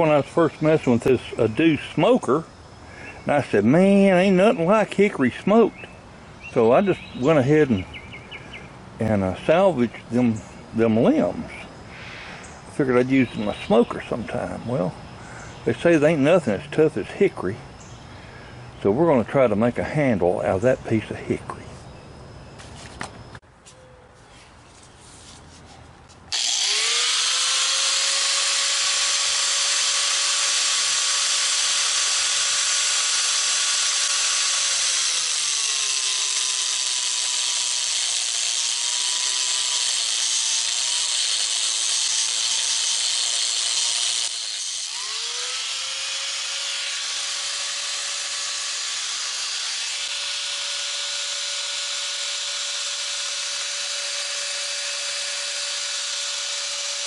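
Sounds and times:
grinder grinding wood: 26.1 - 57.0
angle grinder whining: 26.3 - 57.0
power tool running: 26.3 - 57.0.

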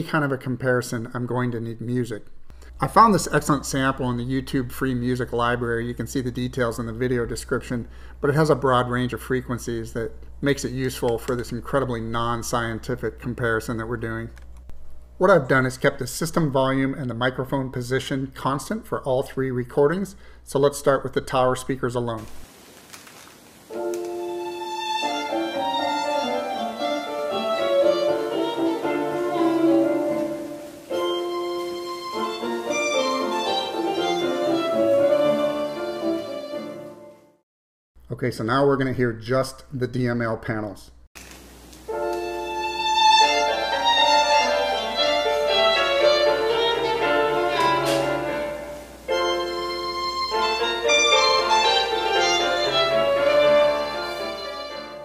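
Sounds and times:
instrumental music through speakers: 23.8 - 37.1, 41.9 - 55.0.

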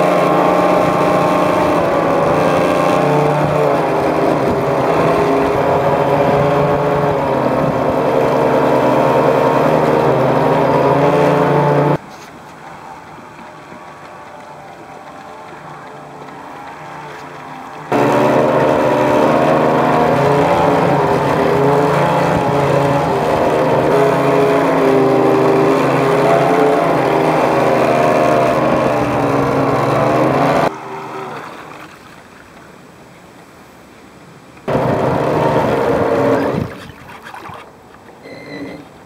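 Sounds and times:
electric motor whining: 0.0 - 12.0, 15.3 - 31.4, 34.7 - 36.8
water rushing against hull: 0.0 - 39.0.

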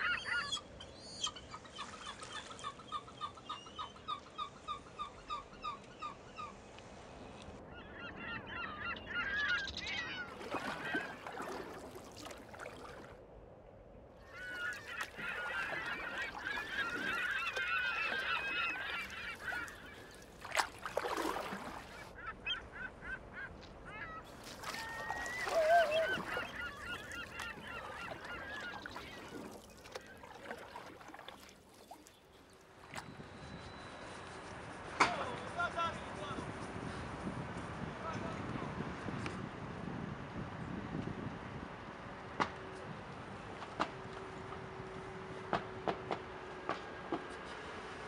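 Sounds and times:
waterbirds calling: 0.0 - 13.2, 14.2 - 36.4.

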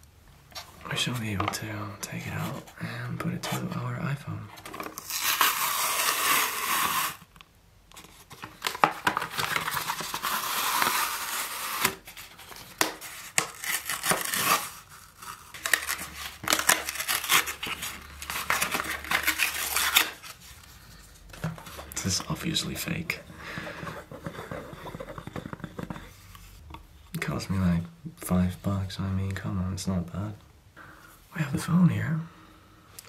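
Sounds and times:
plastic packaging crinkling and tearing: 4.6 - 7.3, 8.0 - 20.8.

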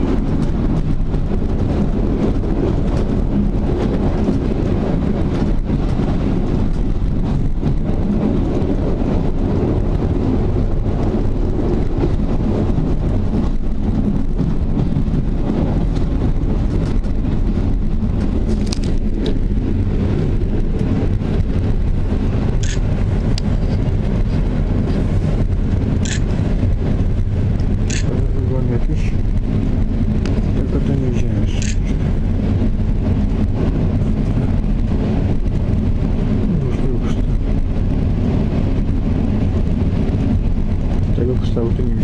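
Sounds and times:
passenger train rumble: 0.0 - 42.0.

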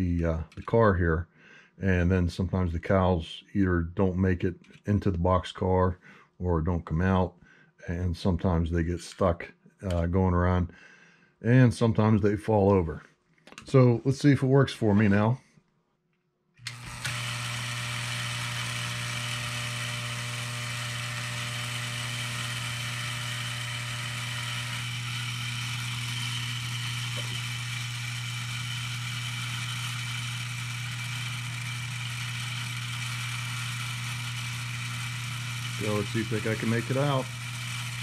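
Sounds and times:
electric vibrator buzzing: 16.6 - 38.0.

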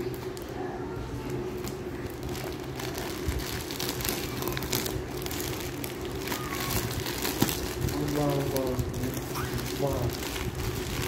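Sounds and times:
plastic wrapping crinkling: 0.0 - 11.0
steady low hum: 0.0 - 11.0.

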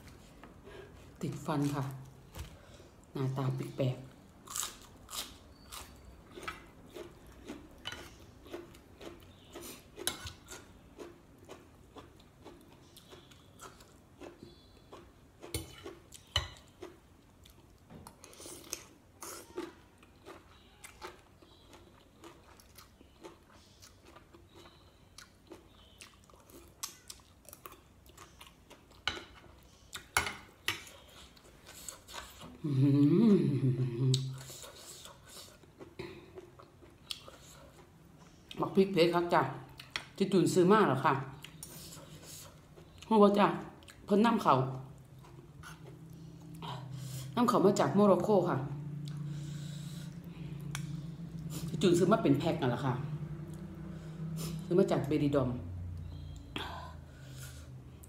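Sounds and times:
person chewing and crunching: 4.4 - 30.2, 44.9 - 46.9.

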